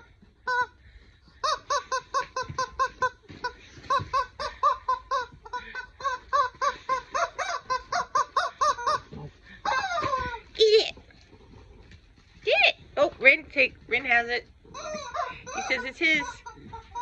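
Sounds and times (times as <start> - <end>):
rubber chicken toy squeaking: 0.4 - 0.7, 1.4 - 10.4, 14.7 - 17.0.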